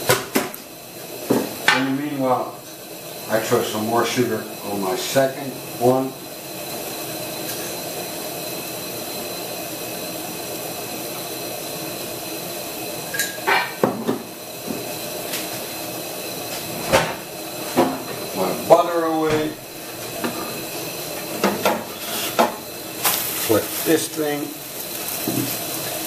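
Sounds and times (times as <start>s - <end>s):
pancake sizzling in a frying pan: 0.0s - 26.0s
pan and utensil clatter: 13.1s - 14.1s, 21.2s - 24.1s, 24.8s - 25.7s.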